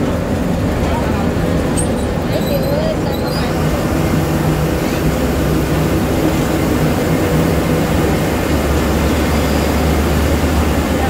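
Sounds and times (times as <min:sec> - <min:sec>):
bus engine humming: 0:00.0 - 0:11.0
tyre road noise: 0:00.0 - 0:11.0.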